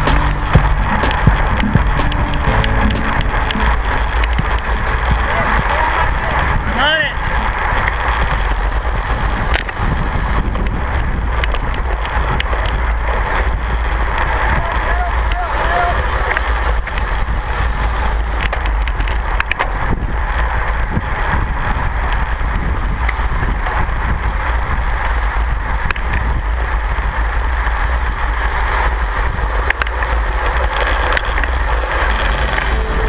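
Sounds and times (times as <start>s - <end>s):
sharp clicks: 0.0s - 5.1s
deep rumble: 0.0s - 33.0s
wind rushing over microphone: 0.0s - 33.0s.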